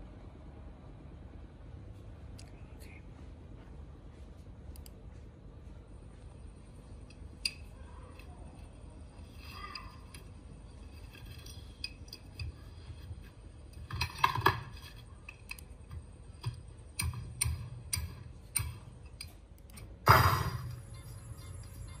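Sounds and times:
metal clatter: 9.2s - 12.6s.

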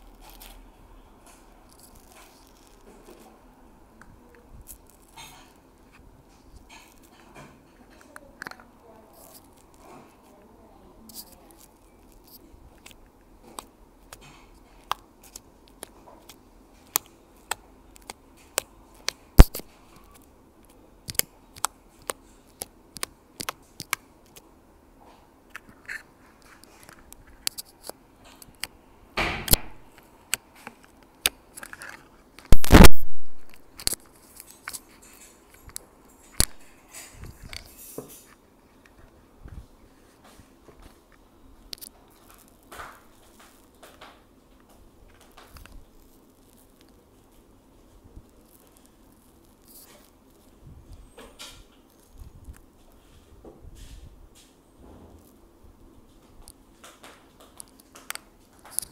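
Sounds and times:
crunchy slime crackling: 0.0s - 24.5s, 29.5s - 37.8s, 41.6s - 53.1s.

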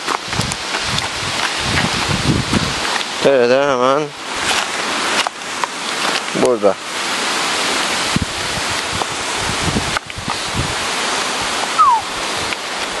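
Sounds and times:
creek rushing over stones: 0.0s - 13.0s
short falling squeak: 11.8s - 12.1s.

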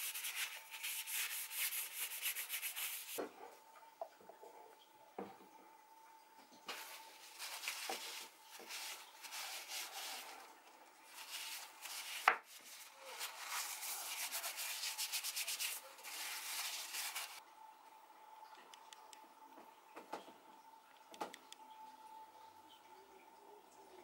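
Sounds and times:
paper towel rubbing wood: 0.0s - 3.2s, 6.7s - 10.5s, 11.1s - 17.4s.

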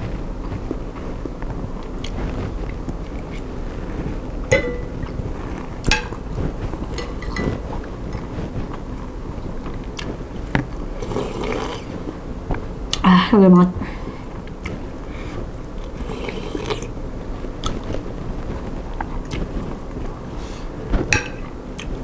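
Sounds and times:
metal spoon clinking on bowl: 4.5s - 5.0s, 6.9s - 7.6s
close chewing: 6.4s - 12.2s, 15.8s - 17.0s, 17.6s - 20.2s
slurping broth: 11.0s - 12.0s, 15.8s - 17.0s.

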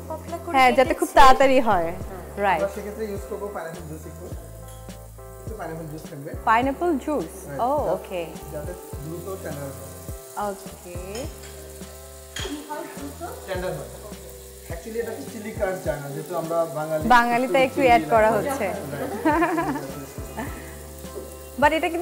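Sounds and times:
background music: 0.0s - 22.0s
meat sizzling in a frying pan: 0.0s - 22.0s.

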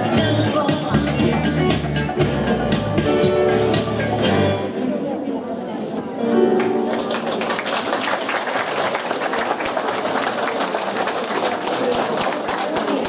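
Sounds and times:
music: 0.0s - 4.9s, 6.2s - 7.5s
audience applause: 6.6s - 13.0s.

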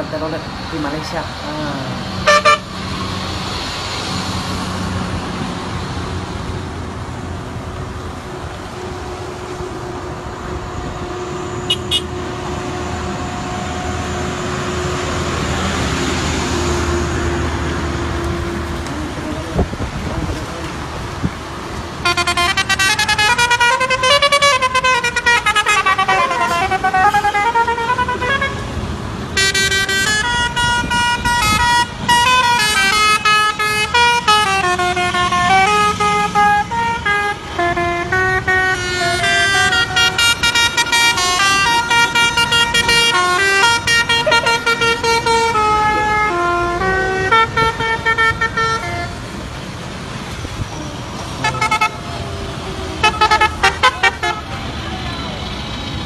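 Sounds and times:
passing traffic: 0.0s - 56.0s
musical air horn playing a tune: 2.3s - 2.7s, 22.0s - 28.8s, 29.4s - 49.2s, 51.4s - 52.0s, 53.0s - 54.5s.

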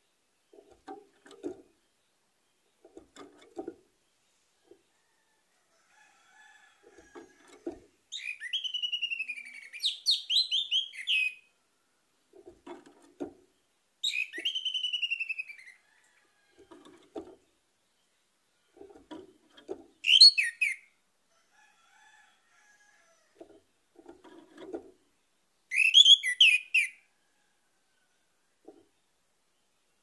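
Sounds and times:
thrush whistling song: 8.1s - 11.4s, 14.0s - 15.8s, 20.0s - 20.9s, 25.7s - 27.0s.

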